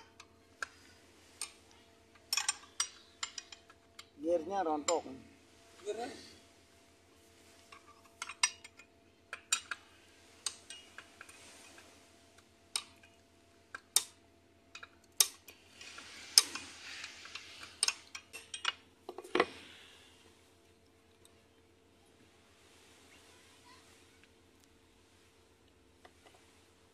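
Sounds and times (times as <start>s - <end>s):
metal tools clinking on parts: 1.4s - 4.2s, 7.7s - 9.8s.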